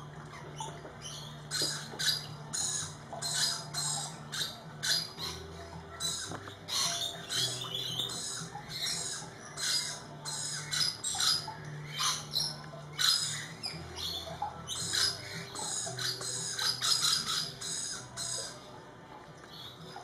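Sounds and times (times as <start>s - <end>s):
parrots screeching: 1.1s - 18.4s.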